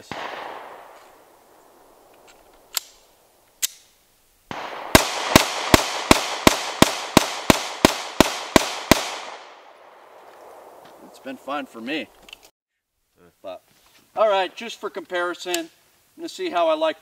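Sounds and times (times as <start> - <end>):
pistol shots: 0.0 - 1.2, 4.5 - 10.8.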